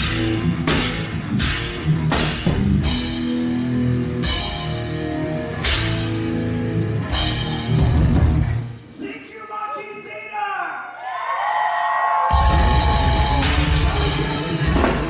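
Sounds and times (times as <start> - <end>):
heavy metal band playing live: 0.0 - 8.8, 12.3 - 15.0.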